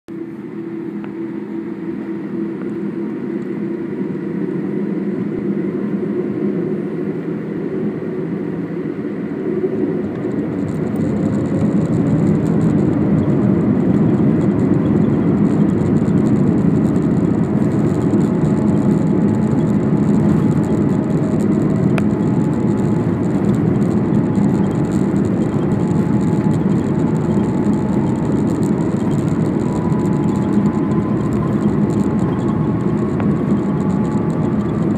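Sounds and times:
jet engines from inside cabin: 0:00.1 - 0:34.9.

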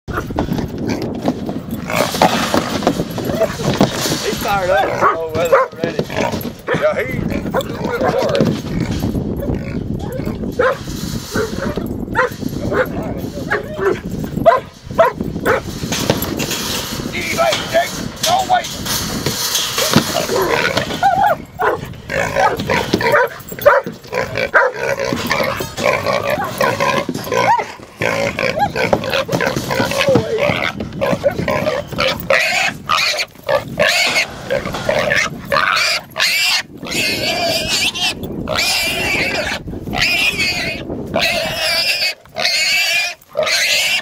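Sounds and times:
dog barking and yipping: 0:04.8 - 0:05.8, 0:10.0 - 0:15.7, 0:19.8 - 0:25.6, 0:26.2 - 0:27.8, 0:28.4 - 0:30.0.

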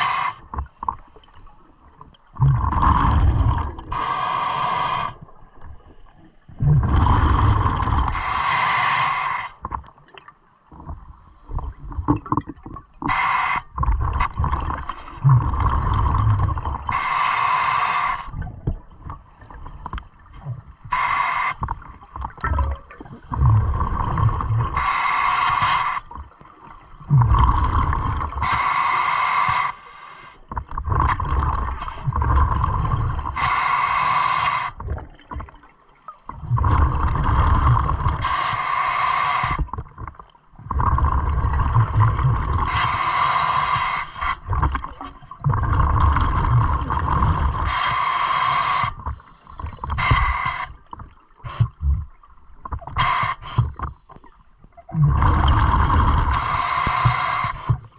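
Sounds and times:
rumble of exhaled bubbles: 0:01.9 - 0:04.2, 0:05.2 - 0:08.3, 0:09.6 - 0:17.0, 0:21.6 - 0:24.9, 0:26.1 - 0:28.6, 0:30.5 - 0:33.4, 0:34.7 - 0:38.4, 0:39.4 - 0:47.9, 0:48.8 - 0:57.9.

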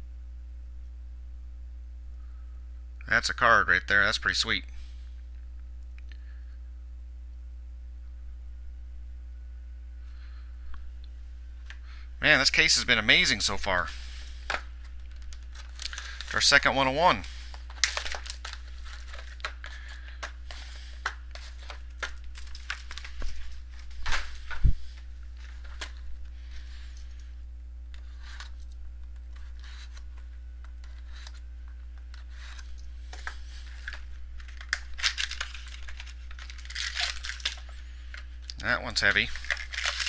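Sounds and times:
low hum: 0:00.0 - 0:40.0
foil wrapper crinkling: 0:11.6 - 0:27.2, 0:27.9 - 0:40.0.

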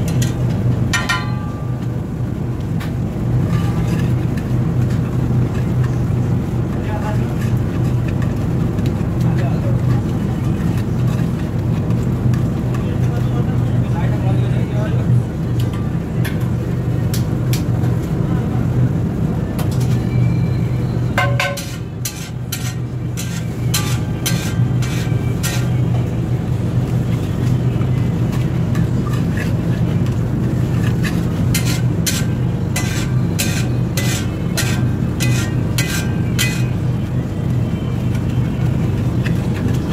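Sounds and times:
metal utensils scraping on griddle: 0:03.4 - 0:06.0, 0:06.8 - 0:08.4, 0:09.2 - 0:11.4, 0:21.1 - 0:26.2, 0:27.1 - 0:36.9, 0:38.9 - 0:39.9.

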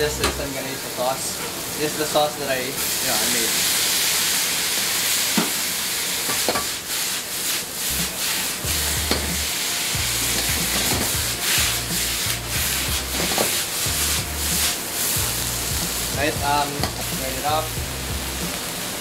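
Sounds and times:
stir fry sizzling in a wok: 0:00.0 - 0:19.0
spatula scraping a pan: 0:06.2 - 0:17.4.

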